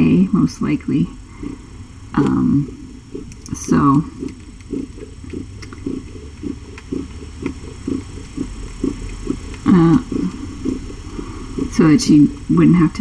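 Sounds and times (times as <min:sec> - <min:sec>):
cat panting: 0:01.3 - 0:13.0.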